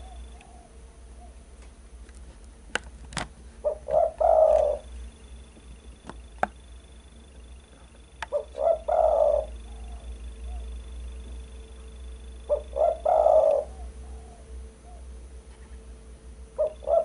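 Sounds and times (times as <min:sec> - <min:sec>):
dove cooing: 0:00.0 - 0:01.4, 0:03.6 - 0:05.0, 0:07.4 - 0:15.9, 0:16.5 - 0:17.0.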